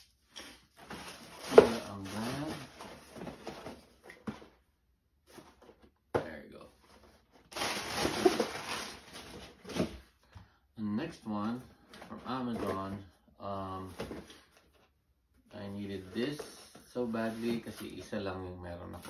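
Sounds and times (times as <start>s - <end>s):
plastic bag crinkling: 0.8s - 2.9s, 7.4s - 9.6s.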